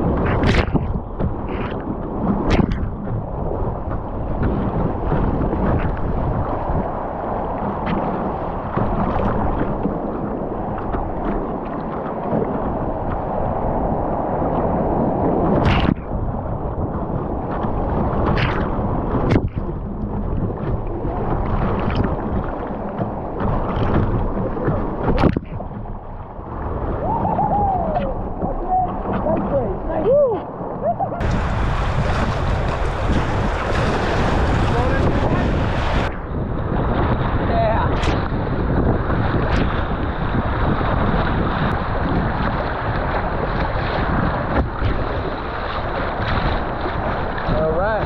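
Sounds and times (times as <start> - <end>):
sharp water splashes: 0.0 - 14.7, 15.4 - 16.4, 17.5 - 30.1, 31.2 - 36.2, 39.1 - 48.0
whitewater rushing: 26.4 - 36.2.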